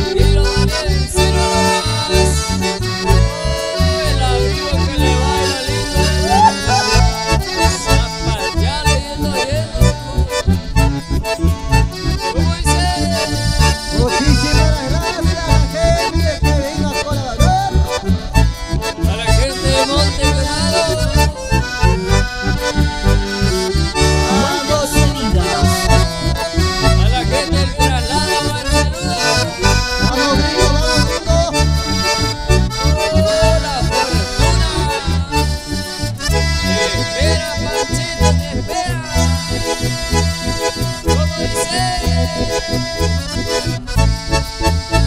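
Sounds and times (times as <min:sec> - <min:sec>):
accordion: 0:00.0 - 0:45.0
acoustic guitar: 0:00.0 - 0:45.0
bandoneon: 0:00.0 - 0:45.0
bass guitar: 0:00.0 - 0:45.0
steady beat: 0:02.7 - 0:09.1, 0:10.7 - 0:45.0.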